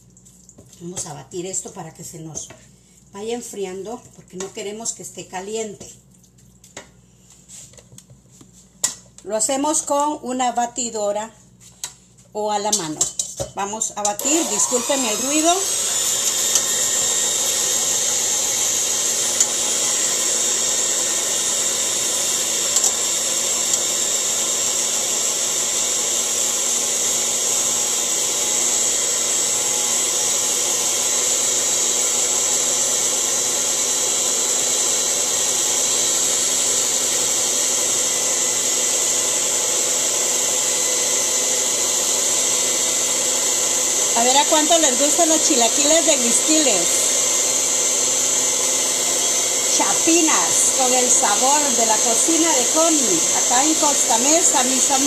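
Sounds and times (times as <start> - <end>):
electric hand mixer whipping: 14.0 - 55.0.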